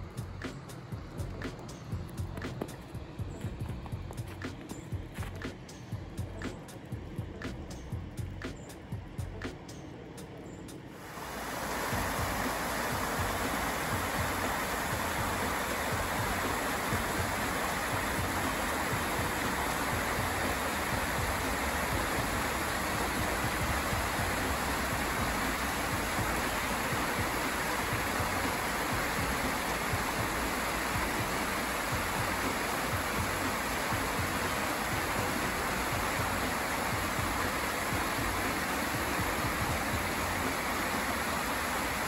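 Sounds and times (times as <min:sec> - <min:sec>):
creek water rushing over rocks: 0:11.0 - 0:42.0.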